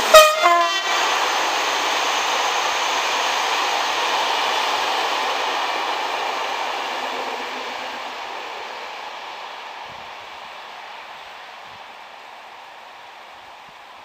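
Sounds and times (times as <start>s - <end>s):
passing train rushing: 0.0s - 14.0s.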